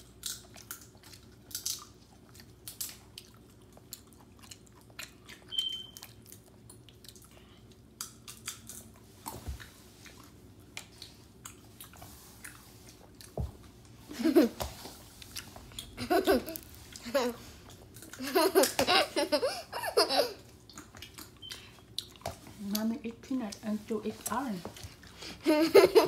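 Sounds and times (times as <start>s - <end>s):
child chewing wetly: 0.0s - 14.0s, 15.0s - 18.3s, 20.3s - 22.9s, 23.5s - 25.5s
child laughing: 14.1s - 14.6s, 16.0s - 17.5s, 18.2s - 20.5s, 25.4s - 26.0s.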